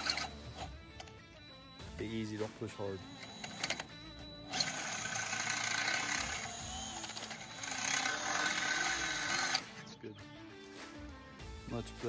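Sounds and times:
cordless drill boring into metal: 0:00.0 - 0:01.1, 0:03.0 - 0:09.6.

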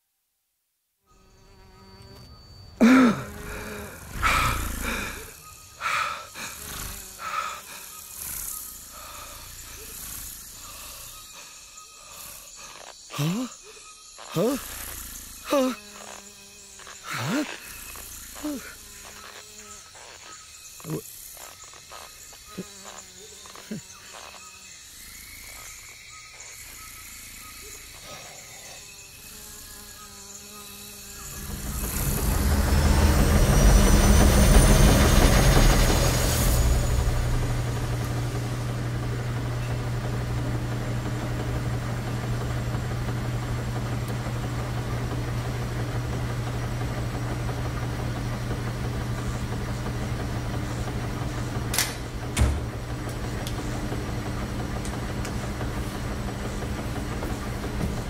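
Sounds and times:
washing machine spinning: 0:31.2 - 0:58.0.

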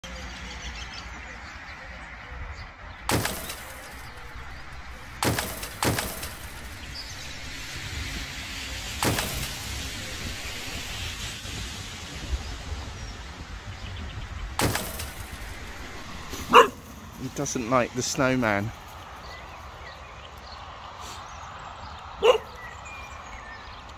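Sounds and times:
outdoor background noise: 0:00.0 - 0:23.9
dog barking: 0:16.4 - 0:16.8, 0:22.2 - 0:22.6.

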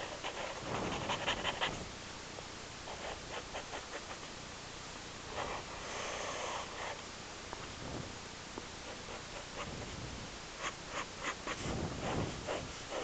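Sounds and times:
marker scratching on paper: 0:00.0 - 0:01.8, 0:02.9 - 0:04.3, 0:08.8 - 0:10.0, 0:10.6 - 0:13.0.

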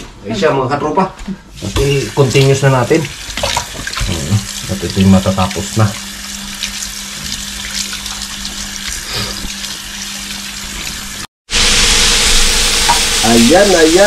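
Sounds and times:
food sizzling in a pan: 0:01.5 - 0:14.0
tap running into a sink: 0:01.7 - 0:06.0.

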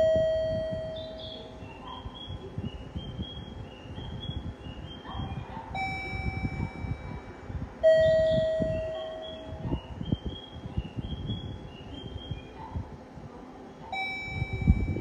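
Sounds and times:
chirping electronic chime: 0:00.0 - 0:01.5, 0:05.8 - 0:09.5, 0:14.0 - 0:15.0.

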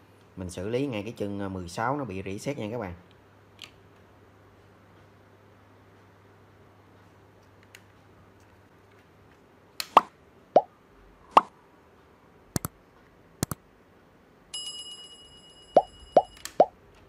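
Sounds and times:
bell-like electronic chime: 0:14.6 - 0:16.5.

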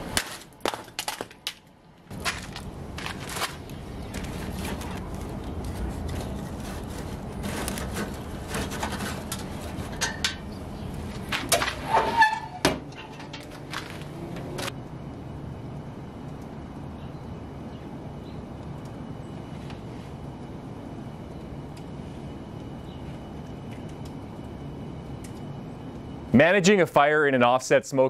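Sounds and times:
wood fire crackling: 0:00.0 - 0:27.8
steady rush of fire: 0:02.0 - 0:12.2
metal door squealing: 0:11.6 - 0:13.7.

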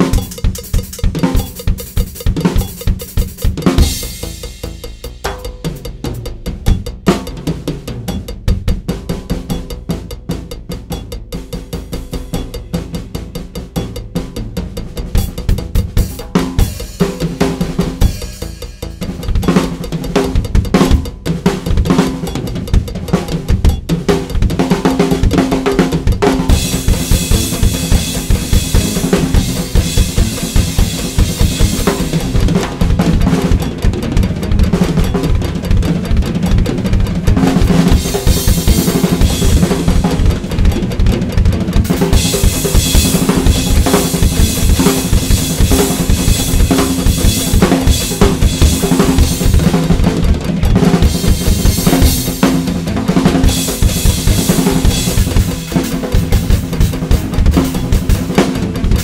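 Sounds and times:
drums played fast: 0:00.0 - 0:59.0.

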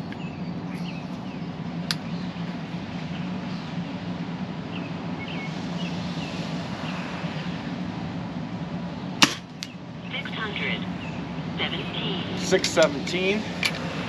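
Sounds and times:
birds chirping: 0:00.0 - 0:03.7, 0:09.0 - 0:13.1
low outdoor hum: 0:00.0 - 0:14.0.

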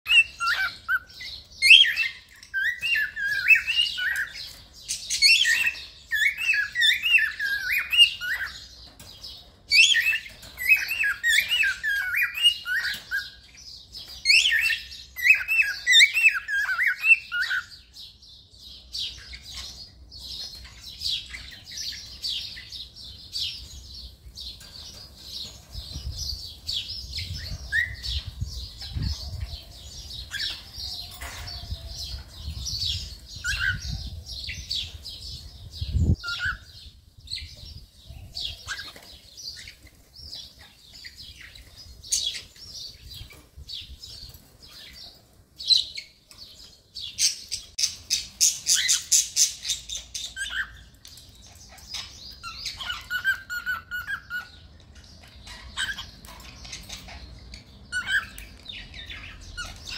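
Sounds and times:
cockatiel whistling and warbling: 0:00.1 - 0:01.1.

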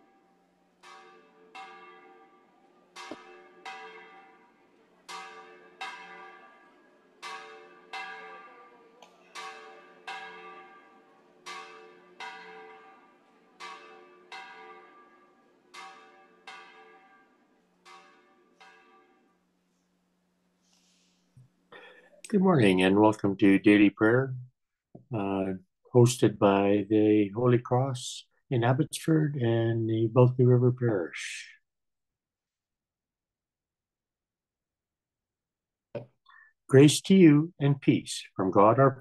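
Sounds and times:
church bells ringing: 0:00.0 - 0:19.4.

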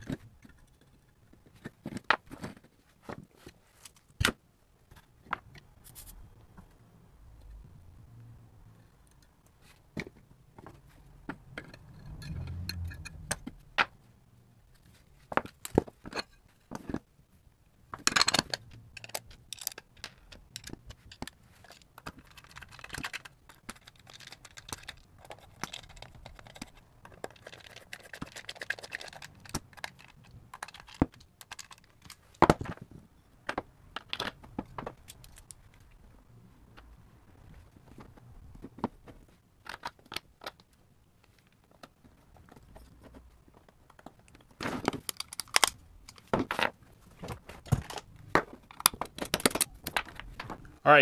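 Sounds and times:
clicks and scrapes of handling: 0:00.0 - 0:06.7, 0:18.0 - 0:36.0.

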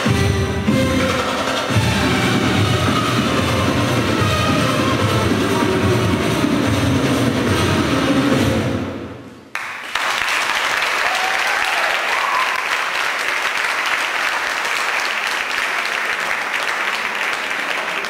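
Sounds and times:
audience applauding: 0:09.5 - 0:18.0.

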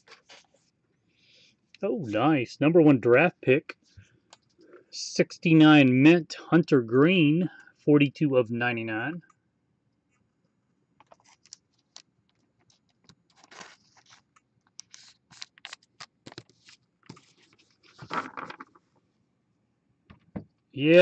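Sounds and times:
trading cards clicking and scraping: 0:11.0 - 0:12.0.

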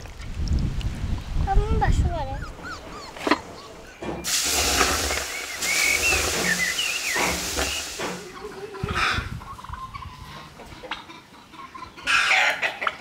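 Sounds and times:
birds chirping: 0:02.2 - 0:12.3
liquid hissing into steam: 0:04.2 - 0:08.4.

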